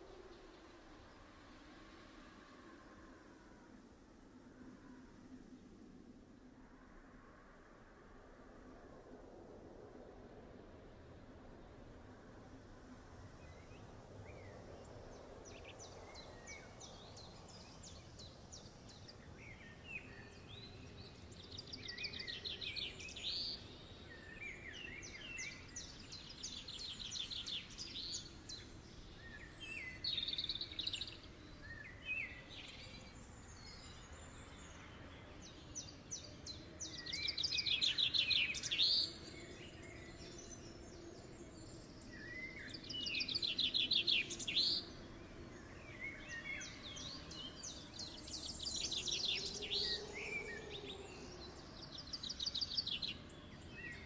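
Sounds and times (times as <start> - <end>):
faint background noise: 0.0 - 54.0
songbirds trilling: 17.6 - 54.0.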